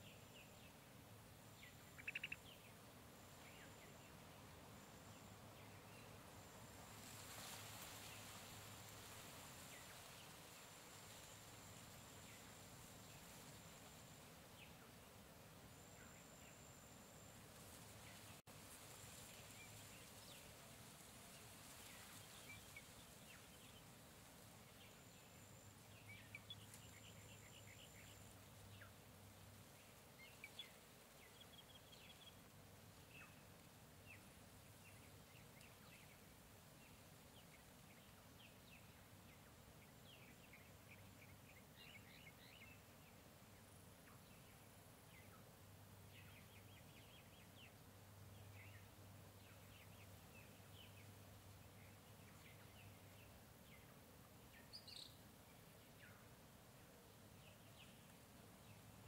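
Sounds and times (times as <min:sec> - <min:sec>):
low background hiss: 0:00.0 - 0:59.0
bird chirps and calls: 0:01.7 - 0:02.6.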